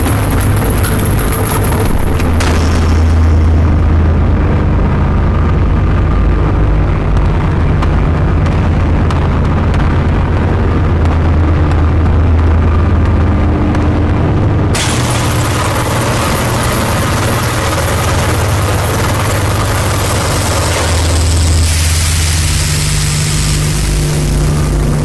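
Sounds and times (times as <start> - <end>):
steady low drone: 0.0 - 25.0
wall of distorted noise: 0.0 - 25.0
high hiss: 20.1 - 25.0.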